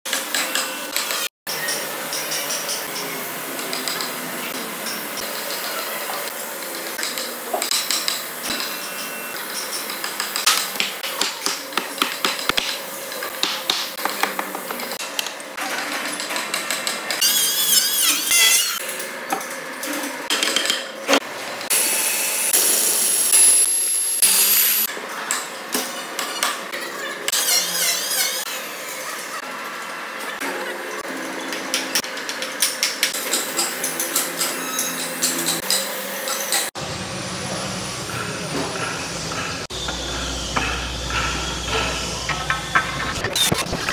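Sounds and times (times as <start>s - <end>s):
machinery rumble: 36.8s - 43.9s.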